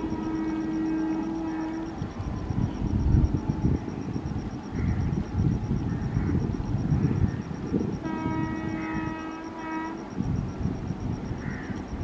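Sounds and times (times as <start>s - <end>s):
locomotive horn blast: 0.0s - 2.0s, 8.0s - 10.2s.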